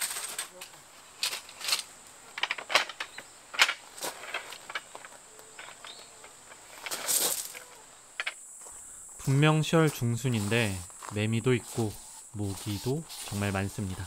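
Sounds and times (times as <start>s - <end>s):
wooden table clattering on gravel: 0.0s - 8.4s
high-pitched insect trill: 3.0s - 14.0s.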